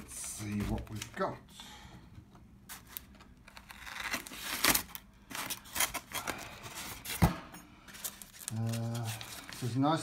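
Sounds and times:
packing tape tearing: 2.7 - 7.2.

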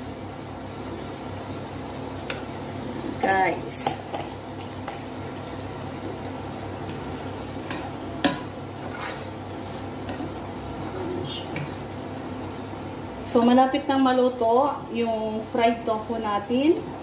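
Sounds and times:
low sizzle: 0.0 - 17.0
spatula stirring food in pot: 2.1 - 12.7.

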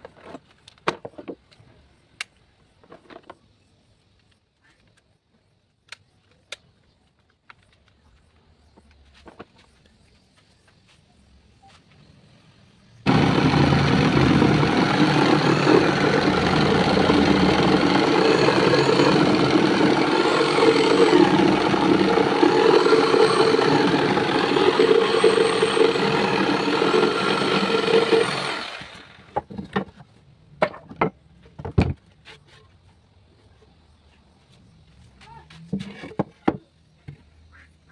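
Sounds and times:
jigsaw cutting wood: 13.1 - 29.3.

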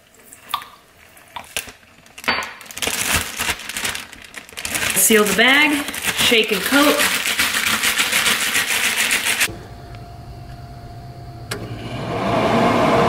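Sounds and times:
plastic bag crinkling: 1.2 - 9.5
low hum: 9.5 - 13.0.

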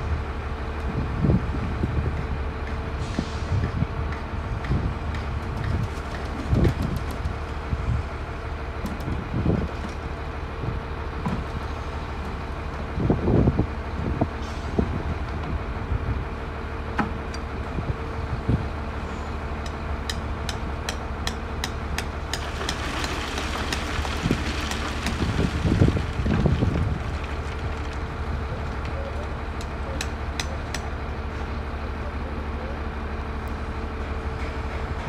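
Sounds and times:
engine running: 0.0 - 35.0.

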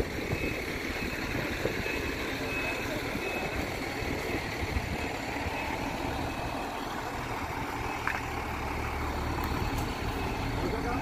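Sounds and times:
truck diesel engine rumbling: 0.0 - 11.0.

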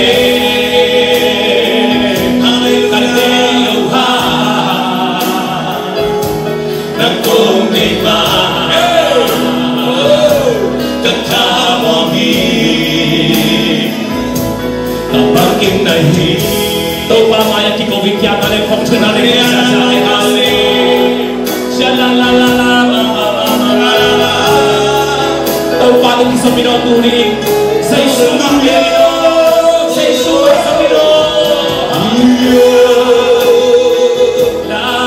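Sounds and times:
choir singing: 0.0 - 14.5, 18.9 - 35.0
musical accompaniment: 0.0 - 35.0.

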